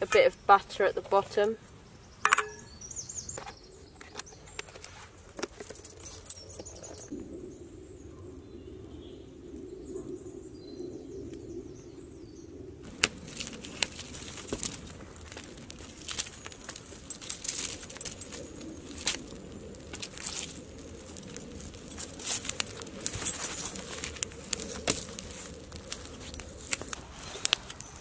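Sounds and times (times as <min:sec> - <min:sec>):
campfire crackling and popping: 0:12.6 - 0:28.0.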